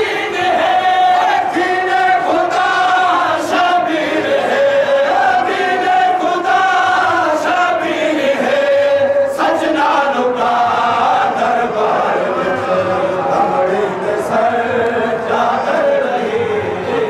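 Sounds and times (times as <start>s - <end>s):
men chanting a lament: 0.0s - 17.0s.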